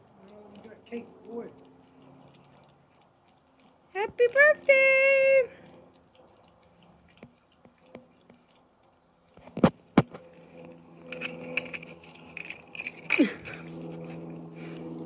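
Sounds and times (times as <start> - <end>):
dog licking and chewing: 0.0 - 15.0
faint steady hum: 0.0 - 15.0.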